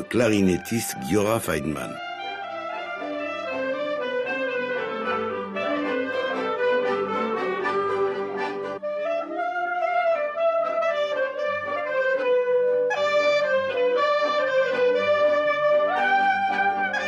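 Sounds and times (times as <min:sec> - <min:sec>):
accordion: 0:00.0 - 0:08.8
clarinet melody: 0:00.0 - 0:17.0.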